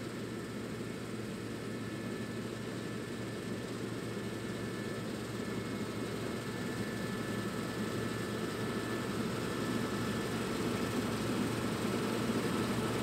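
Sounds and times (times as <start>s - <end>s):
combine harvester engine and threshing: 0.1s - 13.0s.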